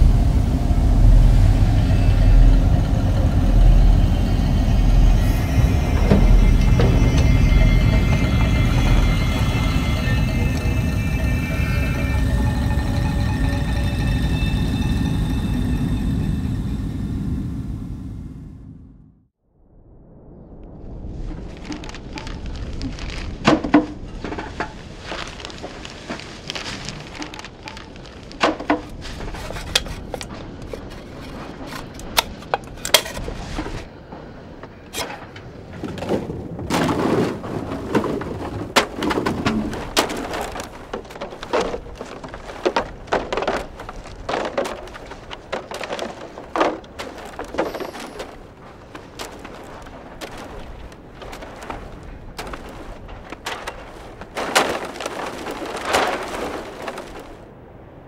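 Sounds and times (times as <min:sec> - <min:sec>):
knocks and clatters of scrap: 0:01.6 - 0:15.9, 0:21.7 - 0:57.4
plastic crinkling: 0:21.5 - 0:33.2, 0:37.0 - 0:57.4.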